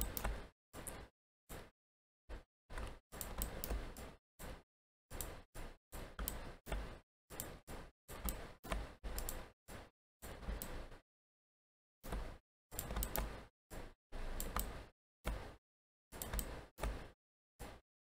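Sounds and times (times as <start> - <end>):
computer mouse clicks: 0.0 - 1.7, 2.7 - 4.1, 5.1 - 5.4, 6.0 - 9.5, 10.3 - 10.9, 12.1 - 13.4, 14.3 - 15.6, 16.2 - 17.8.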